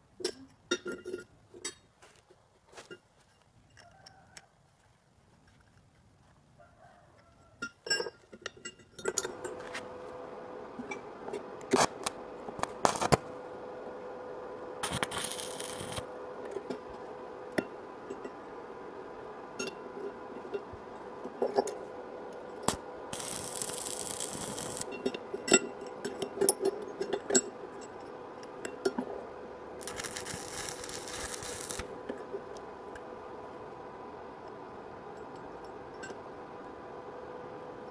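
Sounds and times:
steady hum: 9.0 - 37.9
welding arc crackling hiss: 11.6 - 13.4, 14.8 - 16.2, 22.6 - 25.0, 29.8 - 32.0.

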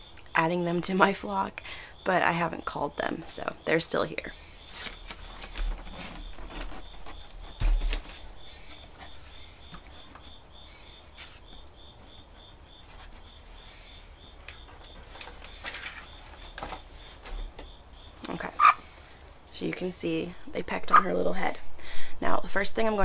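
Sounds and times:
insects chirping: 0.0 - 23.0
rustling: 4.4 - 17.7.

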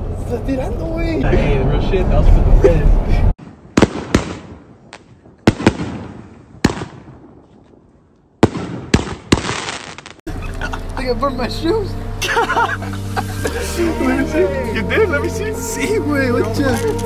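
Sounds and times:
fireworks bangs with echo: 3.4 - 7.5, 8.4 - 10.2.

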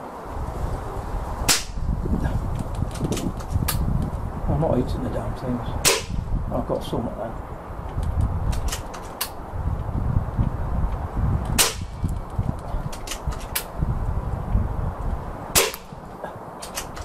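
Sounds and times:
wind rumble on microphone: 0.0 - 17.0
air rifle shot crack: 1.5 - 1.8, 5.8 - 6.2, 11.6 - 12.0, 15.6 - 15.9.

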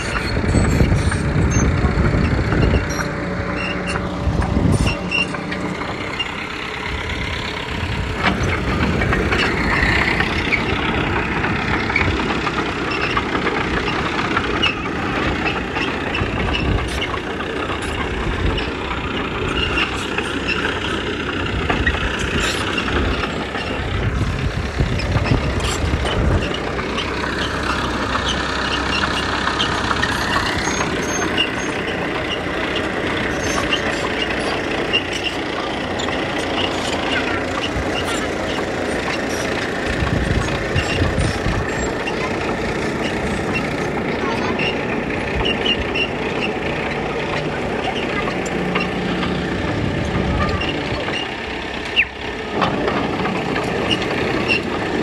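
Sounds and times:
heavy diesel machinery running: 0.0 - 55.0.

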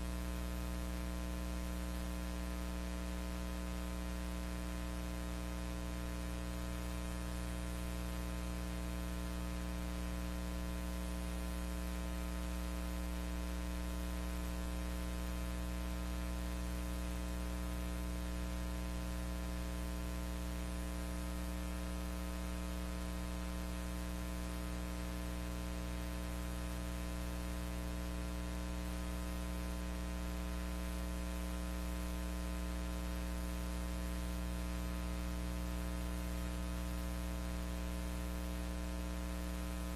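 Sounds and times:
electrical hum: 0.0 - 31.5.

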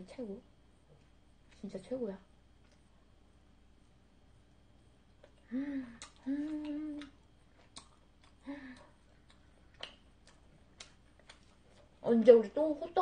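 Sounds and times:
woman humming while chewing: 5.2 - 10.0.

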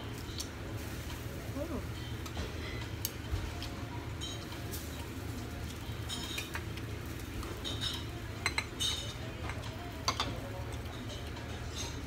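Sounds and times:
utensils clinking on plates: 3.6 - 12.0.

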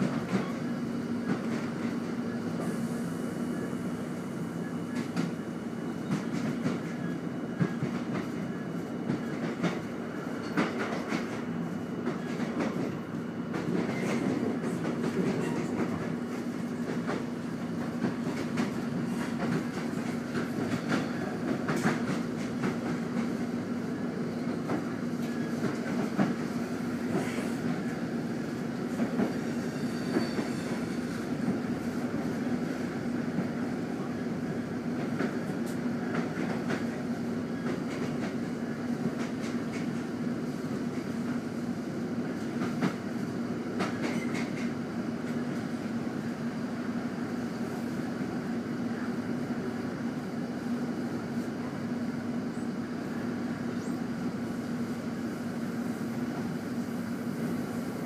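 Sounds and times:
train carriage rumbling on track: 0.0 - 58.0.

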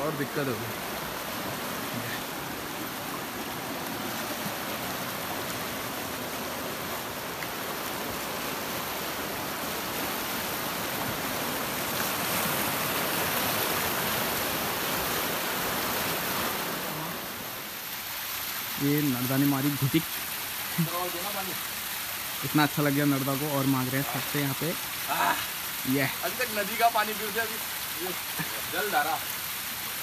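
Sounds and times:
stream water rushing: 0.0 - 30.0.

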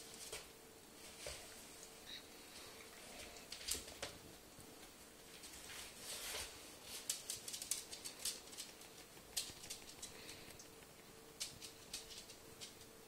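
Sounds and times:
cat claws clicking on wooden floor: 7.0 - 12.9.

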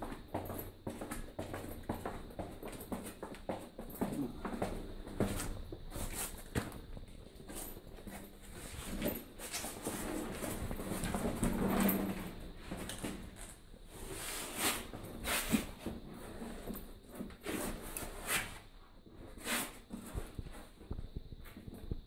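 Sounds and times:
footsteps on concrete stairs: 0.0 - 13.6.

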